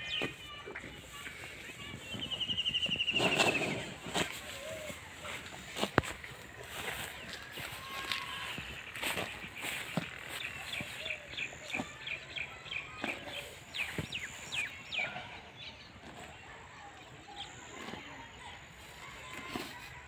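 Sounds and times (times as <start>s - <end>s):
small birds chirping: 0.0s - 18.6s.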